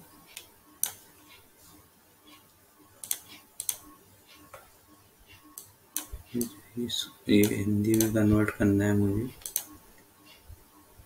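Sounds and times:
computer mouse clicks: 0.3 - 1.0, 3.0 - 4.6, 7.4 - 8.2, 9.4 - 10.5
keyboard clicks: 3.0 - 3.9, 7.4 - 8.4, 9.4 - 9.8.

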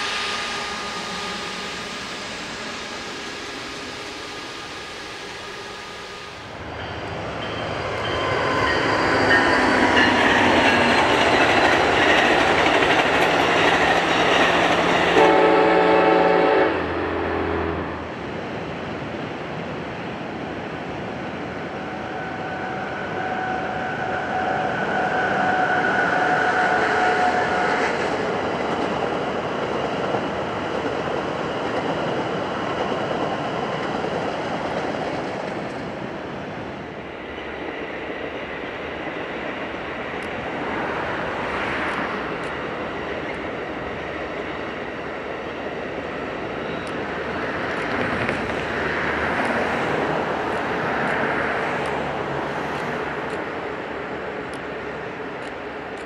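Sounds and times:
train rumbling by: 0.0 - 56.0
locomotive horn blast: 15.1 - 18.0.

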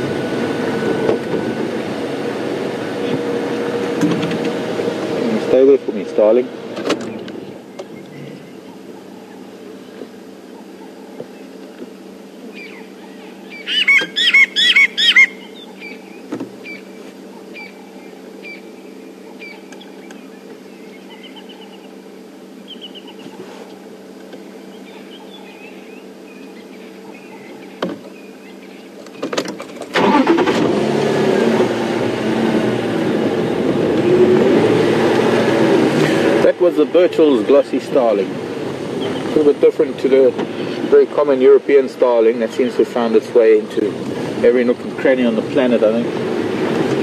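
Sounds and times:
steady low hum: 0.0 - 29.9
vehicle engine running: 0.0 - 47.0
starling calling: 7.0 - 30.4, 37.2 - 41.6.

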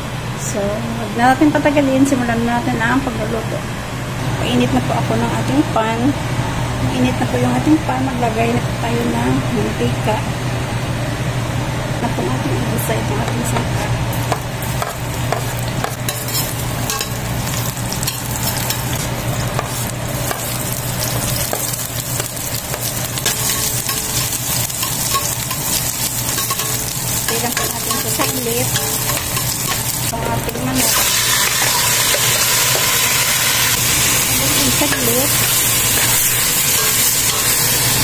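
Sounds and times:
onion sizzling in hot oil: 13.4 - 38.0
metal spoon scraping pot: 15.3 - 17.2, 26.4 - 30.1, 34.6 - 38.0.

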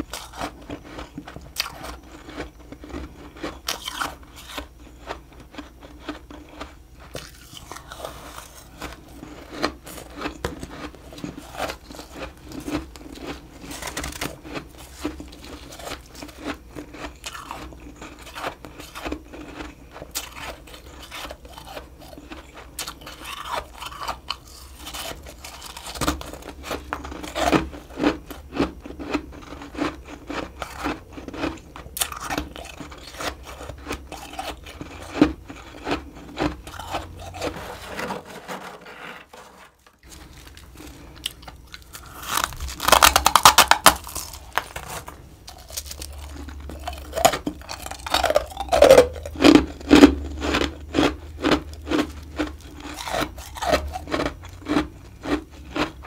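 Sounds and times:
crunching and chewing frost: 0.0 - 56.0
scraping: 36.4 - 41.2.

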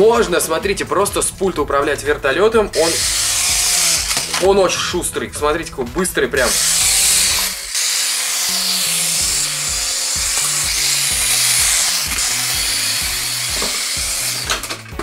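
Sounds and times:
background music with bass line: 0.0 - 7.7, 8.5 - 15.0
toy helicopter buzzing whine: 2.8 - 4.4, 6.5 - 14.8.

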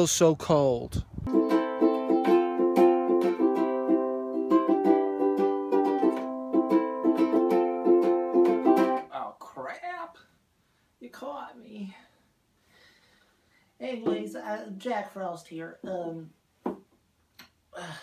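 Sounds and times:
ukulele strumming: 1.3 - 9.1.

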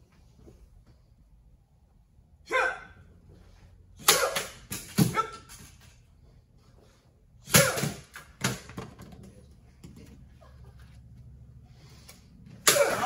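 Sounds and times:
sharp shouts: 2.4 - 3.1, 4.0 - 5.5, 7.4 - 8.1, 12.6 - 13.0.

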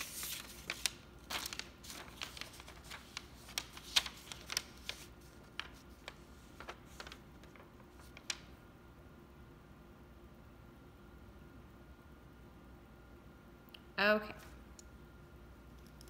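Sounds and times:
paper crinkling: 0.0 - 8.6
paper rustling: 0.0 - 8.6.

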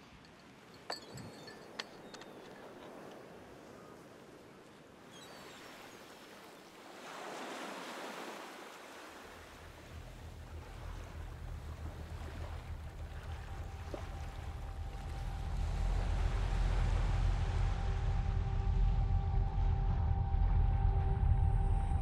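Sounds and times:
ocean surf on a beach: 1.6 - 17.8
low rumble: 9.6 - 22.0.

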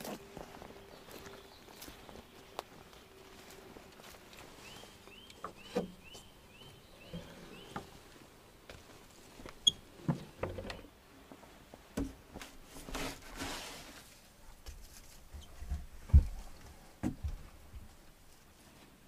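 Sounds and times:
rustling: 12.3 - 19.0.

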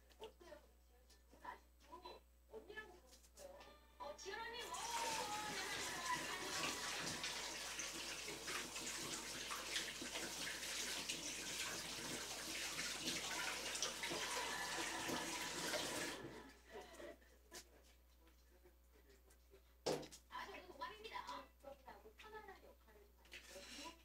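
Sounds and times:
water drips: 4.6 - 16.3
water running: 4.6 - 16.6.

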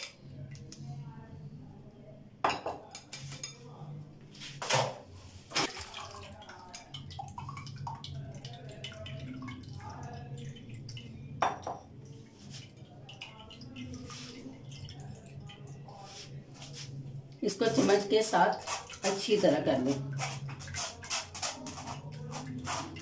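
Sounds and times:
clinks of strainer and bowls: 2.5 - 3.7
liquid dripping through strainer: 5.6 - 23.0.

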